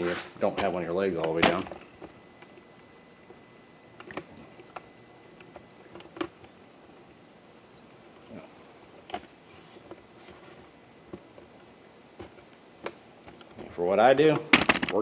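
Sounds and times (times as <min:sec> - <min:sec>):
faint room noise: 0:00.0 - 0:15.0.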